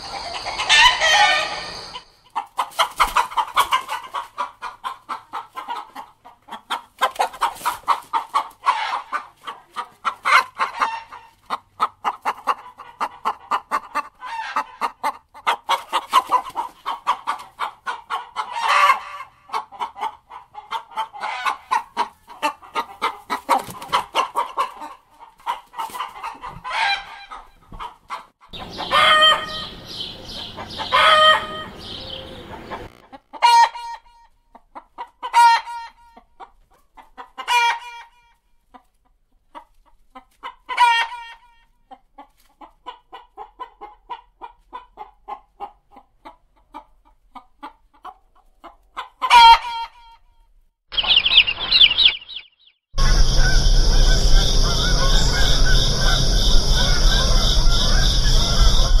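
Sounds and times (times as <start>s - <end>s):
chicken squawks: 0.0s - 34.2s, 35.2s - 36.2s, 49.0s - 50.2s, 50.9s - 59.0s
chickens clucking: 0.0s - 38.1s, 38.7s - 50.0s, 50.9s - 59.0s.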